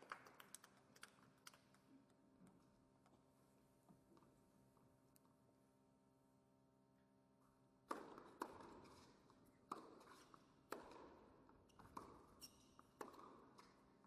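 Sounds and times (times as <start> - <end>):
tennis ball bouncing: 13.0 - 13.7.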